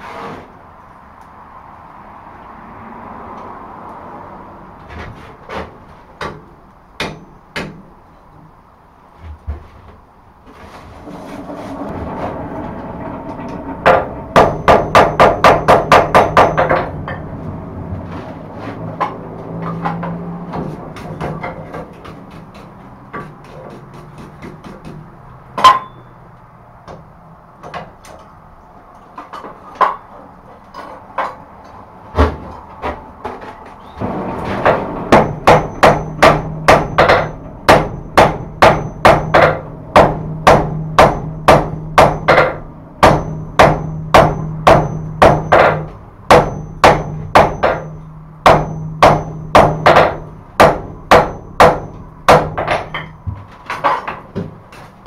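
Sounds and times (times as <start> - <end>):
hammer striking steel on anvil: 7.0 - 7.8, 13.8 - 17.3, 25.6 - 26.2, 34.6 - 53.2.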